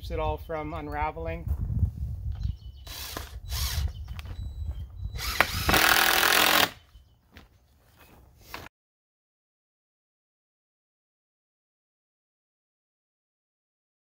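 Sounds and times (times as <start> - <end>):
cordless drill driving screws: 2.8 - 4.0, 5.1 - 6.8.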